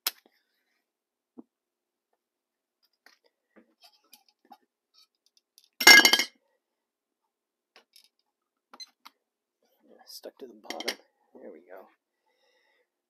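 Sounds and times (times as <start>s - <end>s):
metal pot clattering: 10.7s - 11.0s.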